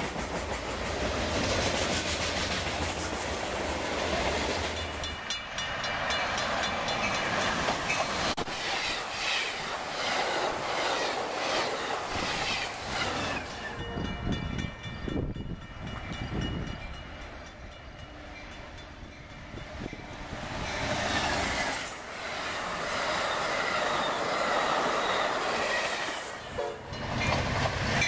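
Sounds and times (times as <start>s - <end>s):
train passing at speed: 0.0s - 28.0s
wheels clicking over rail joints: 23.9s - 28.0s.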